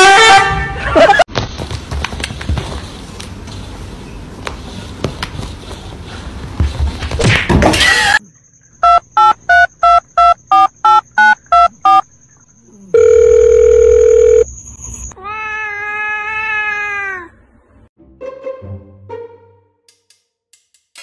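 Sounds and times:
steady phone tone: 0:12.9 - 0:14.5
telephone keypad beeps: 0:13.0 - 0:14.4.

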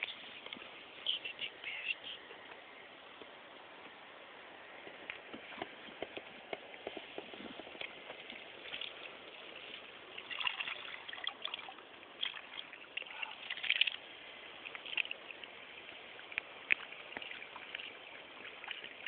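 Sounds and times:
water splashing and trickling: 0:04.8 - 0:19.0.

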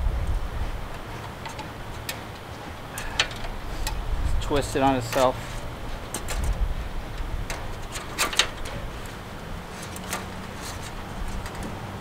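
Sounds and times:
wire clicking and scraping: 0:00.7 - 0:12.0.

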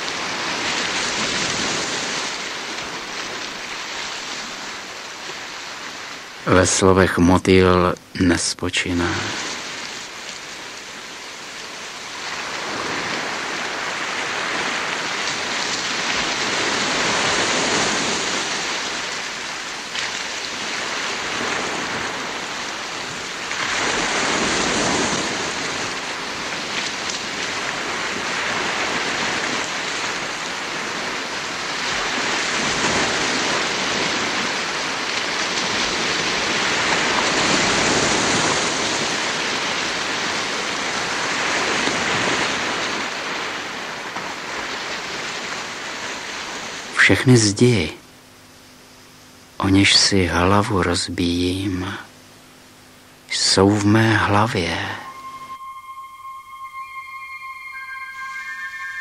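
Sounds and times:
rushing water: 0:00.0 - 0:47.0.

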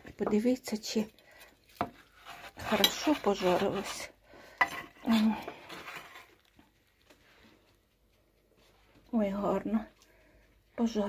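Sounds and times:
knife scraping metal tray: 0:01.9 - 0:05.0
knife sawing through sausage: 0:02.0 - 0:04.1.

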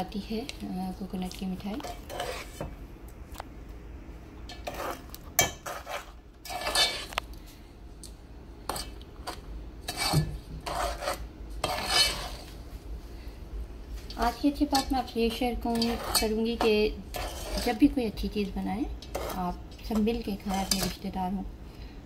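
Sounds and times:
metal spoon scraping pot: 0:01.8 - 0:02.7, 0:04.5 - 0:07.2, 0:08.7 - 0:12.5, 0:14.7 - 0:17.9, 0:19.0 - 0:21.1.

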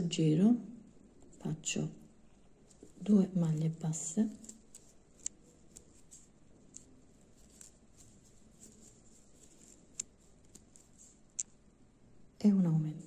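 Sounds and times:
crochet hook clicks and rustles: 0:02.6 - 0:11.6.

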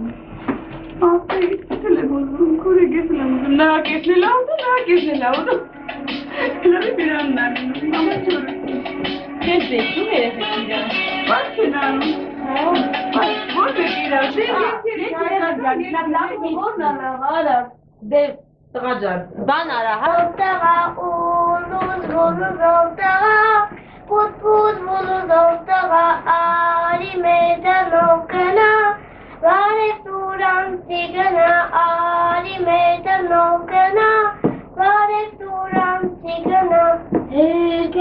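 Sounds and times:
girl singing alone: 0:06.3 - 0:08.6, 0:20.0 - 0:38.0.

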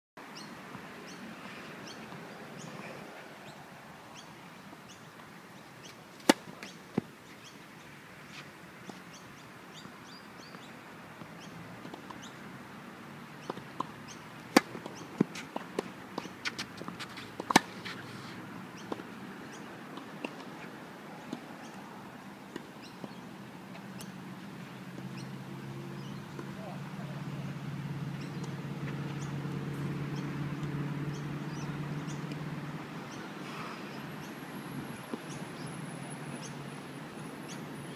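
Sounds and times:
outdoor background noise: 0:00.2 - 0:37.9
birds chirping: 0:00.3 - 0:12.4, 0:17.2 - 0:32.4, 0:33.0 - 0:37.9
tennis ball bouncing: 0:06.2 - 0:07.1, 0:13.4 - 0:18.0, 0:18.8 - 0:21.8, 0:26.0 - 0:27.2
rackets hitting tennis ball: 0:13.4 - 0:18.0.

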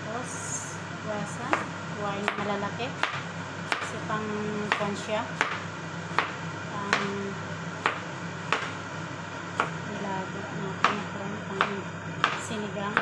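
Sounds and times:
knife chopping on cutting board: 0:03.0 - 0:03.9, 0:04.7 - 0:07.1, 0:07.8 - 0:08.8, 0:11.6 - 0:13.0.

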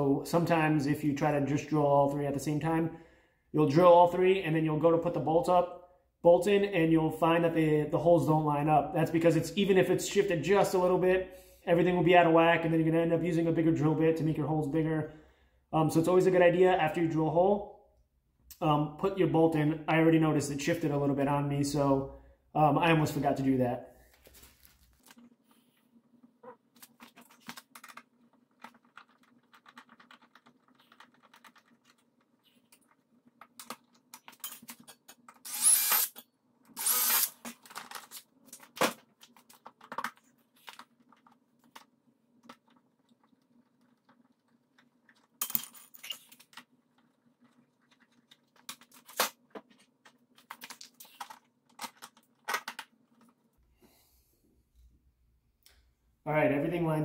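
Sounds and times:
metal clinks of bolts and nuts: 0:45.4 - 0:46.3.

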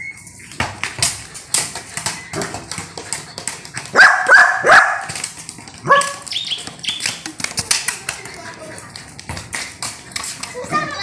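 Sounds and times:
dog barking: 0:03.9 - 0:05.1, 0:05.8 - 0:06.3.

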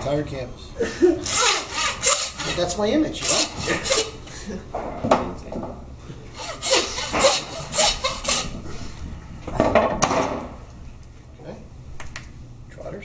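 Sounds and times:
bone saw rasping through bone: 0:01.2 - 0:04.2, 0:06.4 - 0:08.6.

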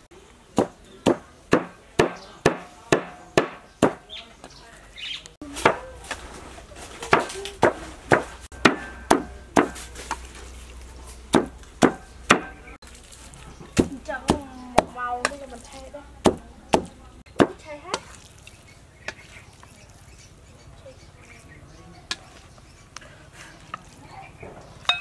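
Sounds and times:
cleaver chopping on wooden block: 0:00.6 - 0:04.0, 0:07.1 - 0:09.8, 0:11.3 - 0:12.6, 0:16.2 - 0:18.0.

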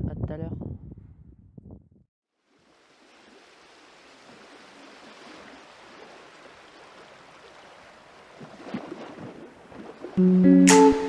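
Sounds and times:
small waves lapping: 0:02.4 - 0:10.2.

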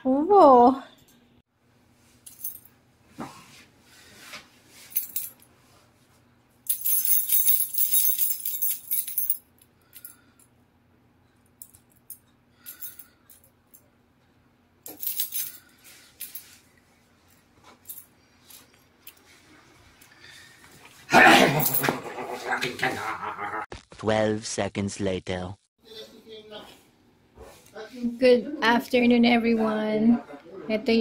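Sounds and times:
keychain jingling: 0:06.7 - 0:09.4, 0:14.9 - 0:15.6.

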